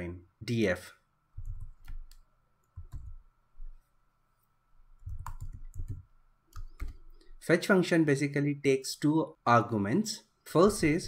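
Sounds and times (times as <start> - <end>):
keyboard typing: 1.4 - 3.2, 5.0 - 7.4.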